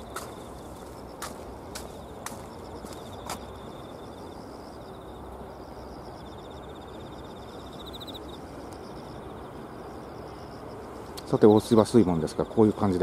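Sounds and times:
insects trilling: 0:00.0 - 0:13.0
low outdoor hiss: 0:00.0 - 0:13.0.

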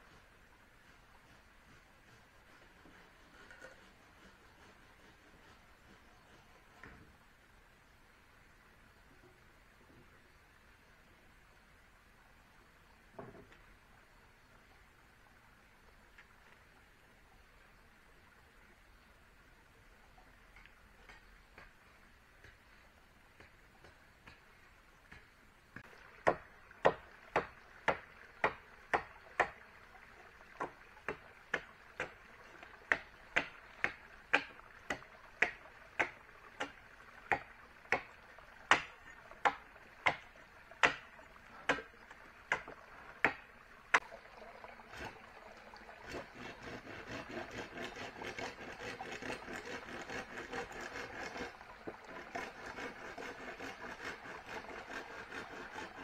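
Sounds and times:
hand tool striking wood: 0:32.9 - 0:38.1, 0:38.7 - 0:38.9
rasping rub on wood: 0:46.1 - 0:51.5, 0:52.1 - 0:56.0.

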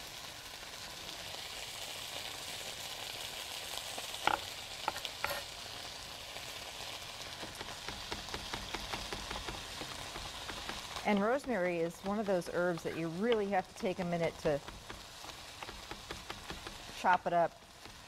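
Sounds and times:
potatoes sizzling in oil: 0:00.0 - 0:18.0
knife chopping on cutting board: 0:07.5 - 0:13.5, 0:14.6 - 0:16.9.

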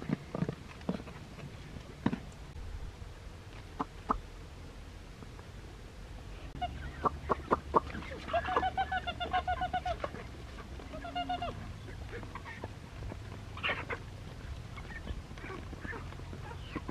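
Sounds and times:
chicken clucking: 0:06.6 - 0:16.9.

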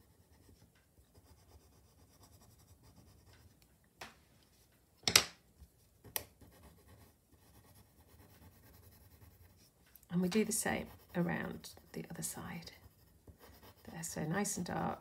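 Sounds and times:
pencil scratching on paper: 0:00.0 - 0:03.4, 0:06.4 - 0:09.7, 0:10.3 - 0:14.6
pencils clicking when set down: 0:05.0 - 0:05.4.

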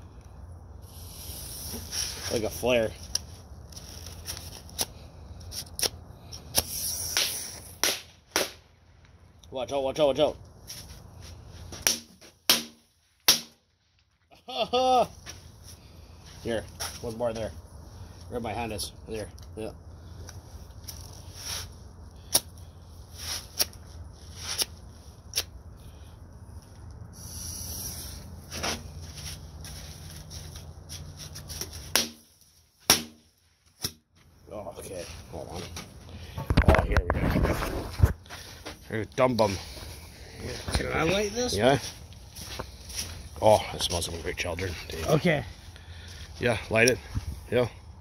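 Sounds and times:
steady hiss: 0:00.8 - 0:04.3, 0:06.3 - 0:08.0, 0:27.1 - 0:28.7
match scratching on box: 0:05.5 - 0:07.8, 0:27.2 - 0:28.8
match tip burning: 0:05.5 - 0:08.5
firecrackers cracking: 0:06.5 - 0:08.6.

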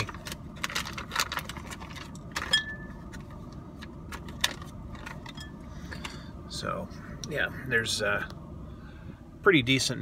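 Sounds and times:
snack pouch crinkling: 0:00.0 - 0:02.5
steady low rumble: 0:00.0 - 0:10.0.

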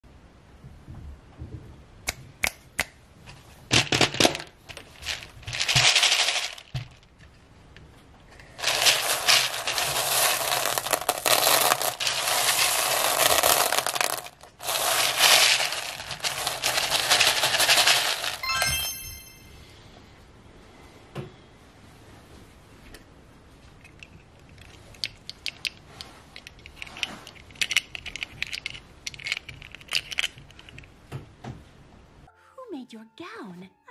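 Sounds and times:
plastic beads clattering in tray: 0:03.7 - 0:07.1, 0:08.5 - 0:19.2, 0:26.4 - 0:30.4
brief ringing tone: 0:18.4 - 0:19.7.

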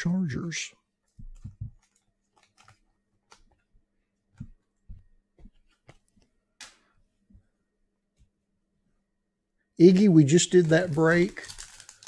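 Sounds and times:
cards clicking and tapping: 0:01.1 - 0:03.7.

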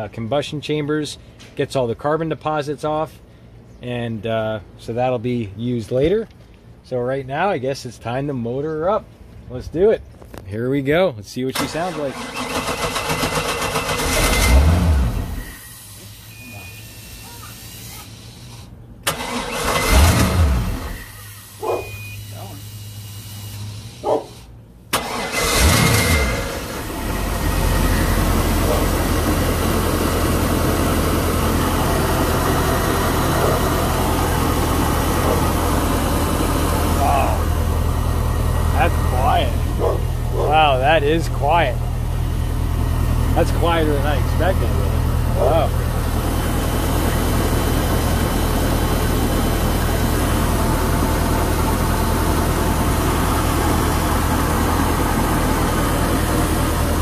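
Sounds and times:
boat engine idling: 0:26.9 - 0:57.0.

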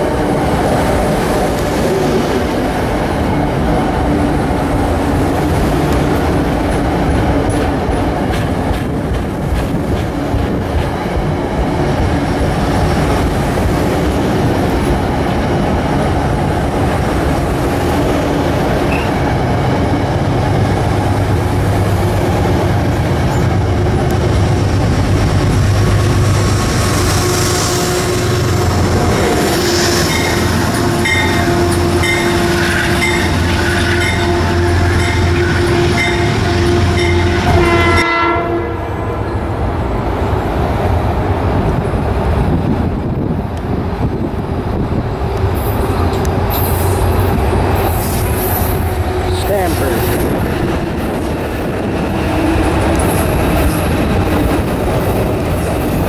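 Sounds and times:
train rumbling past: 0:00.0 - 0:56.0
train horn: 0:27.0 - 0:39.3.

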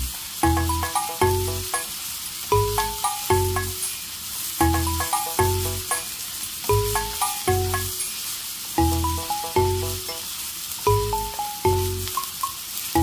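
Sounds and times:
plucked music with bass line: 0:00.0 - 0:01.8, 0:02.5 - 0:03.8, 0:04.6 - 0:06.0, 0:06.7 - 0:08.0, 0:08.8 - 0:10.1, 0:10.9 - 0:12.2
vegetables sizzling in a pan: 0:00.0 - 0:13.0.

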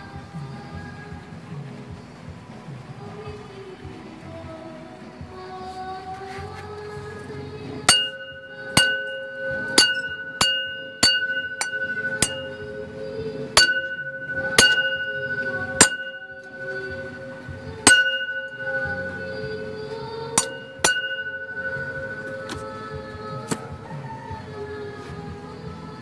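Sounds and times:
ringing bell-like strikes: 0:07.9 - 0:23.5.

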